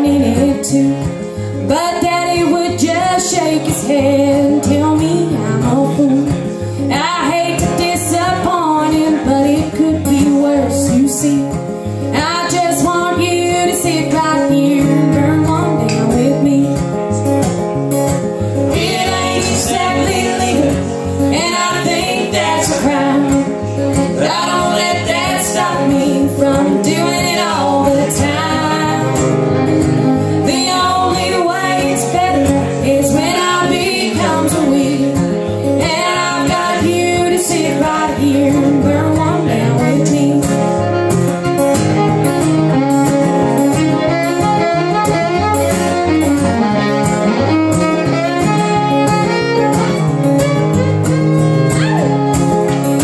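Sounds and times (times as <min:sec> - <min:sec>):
fiddle melody: 0:00.0 - 0:53.0
strummed acoustic guitar: 0:00.0 - 0:53.0.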